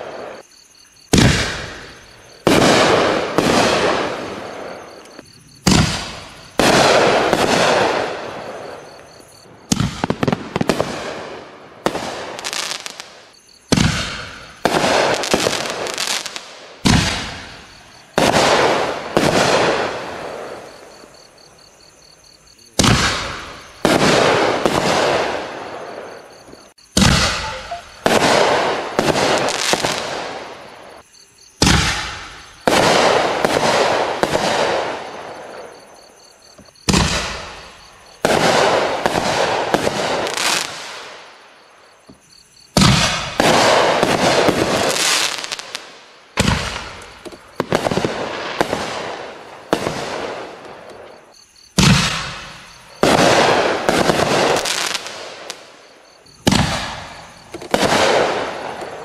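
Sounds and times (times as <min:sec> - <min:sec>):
firework shells bursting: 0:26.9 - 0:30.4.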